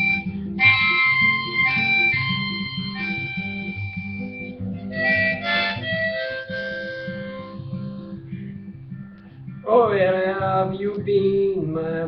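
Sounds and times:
harmonica notes: 0.0s - 9.2s
strummed acoustic guitar: 0.0s - 12.0s.

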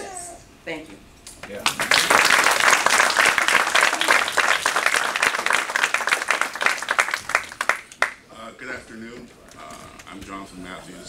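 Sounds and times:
audience applauding: 1.6s - 8.2s.

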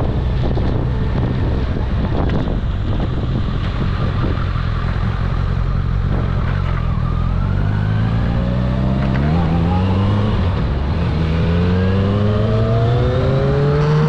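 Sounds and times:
motorcycle engine running: 0.0s - 7.6s.

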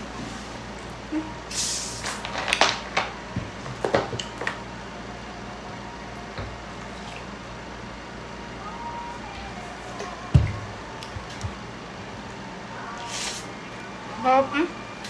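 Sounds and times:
carbonation gas hissing: 1.4s - 2.4s.

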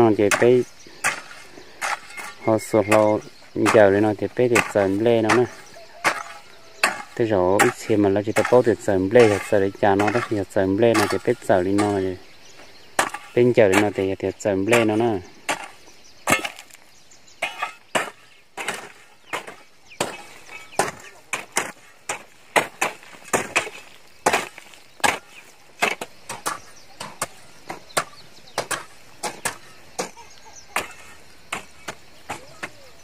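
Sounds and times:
hoes chopping into dry soil: 0.0s - 33.0s.

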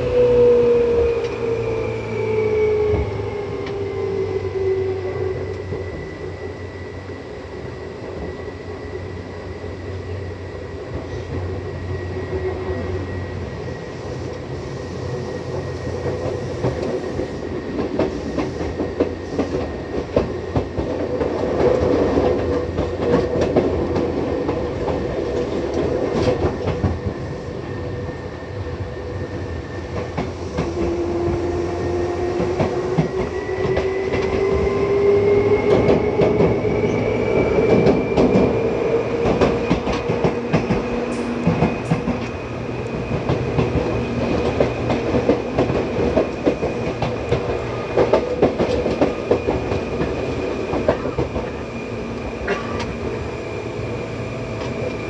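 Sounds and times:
train rumble: 0.0s - 55.0s.

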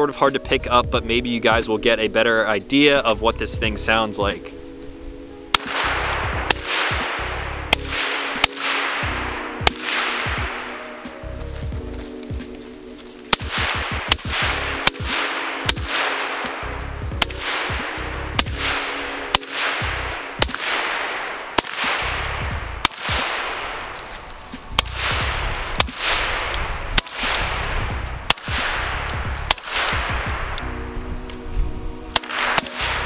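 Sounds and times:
background music: 0.0s - 33.0s
suppressed rifle shots: 5.5s - 11.1s, 13.3s - 30.6s, 32.1s - 33.0s.

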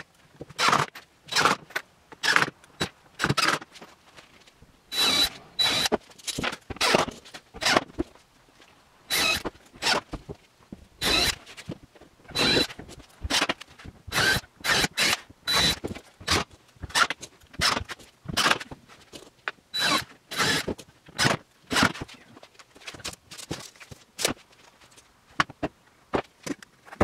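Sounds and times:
cordless drill driving screws: 4.9s - 6.0s, 9.1s - 10.0s, 11.0s - 11.4s, 12.3s - 12.7s, 14.1s - 17.8s, 19.8s - 20.8s.

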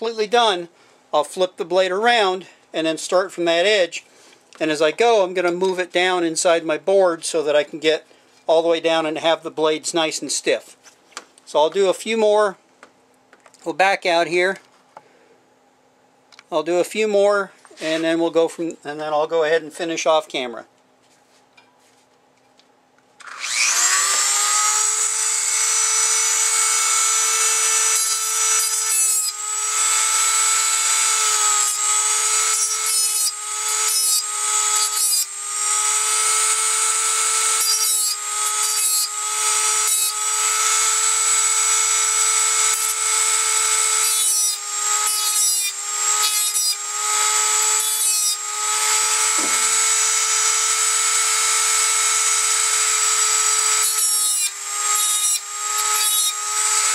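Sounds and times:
rotary tool grinding steel: 23.2s - 56.9s.

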